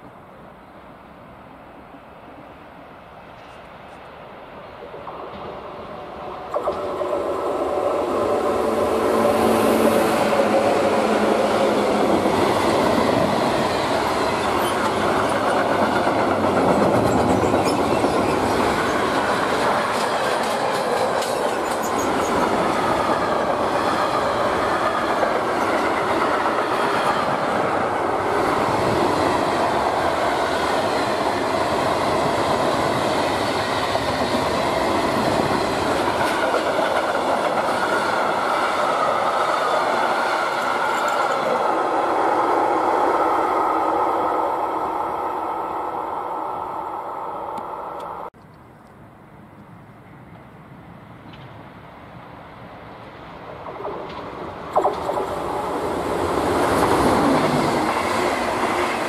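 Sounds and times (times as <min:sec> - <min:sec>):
electric locomotive passing: 0:00.0 - 0:48.3, 0:49.2 - 0:59.0
wheels clattering on rails: 0:11.8 - 0:29.0, 0:31.0 - 0:41.6, 0:53.4 - 0:59.0.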